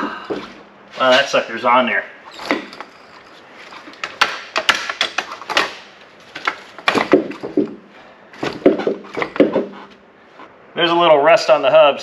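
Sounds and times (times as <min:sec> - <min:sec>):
sharp metal knocks and clunks: 0:02.3 - 0:09.8.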